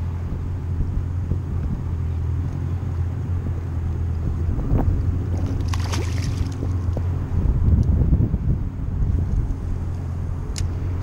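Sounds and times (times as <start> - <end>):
steady low rumble: 0.0 - 11.0
fish splashing into water: 5.3 - 6.8.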